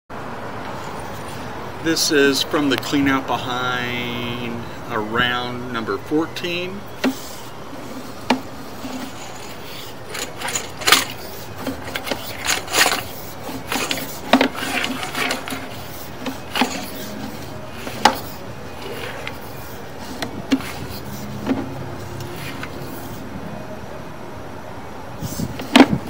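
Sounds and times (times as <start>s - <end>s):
low hum: 6.8s - 26.0s
cable clicking and scraping in pipe: 7.0s - 23.2s.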